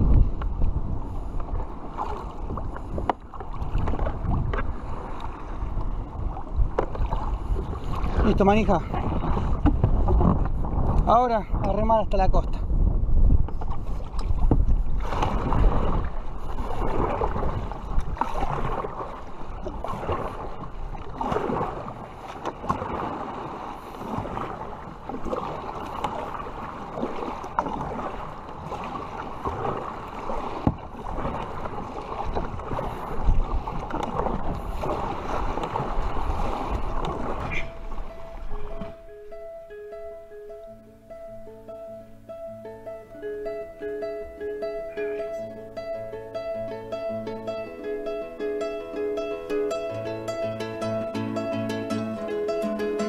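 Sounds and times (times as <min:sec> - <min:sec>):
paddle strokes splashing water: 0:00.0 - 0:11.8, 0:12.8 - 0:53.0
wind buffeting microphone: 0:00.0 - 0:40.8
plucked string music: 0:37.0 - 0:53.0.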